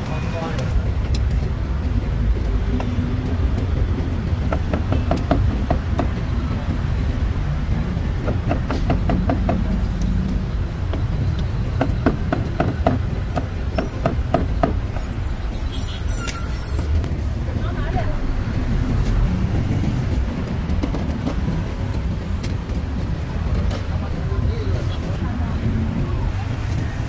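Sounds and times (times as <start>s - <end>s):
street traffic rumble: 0.0s - 27.0s.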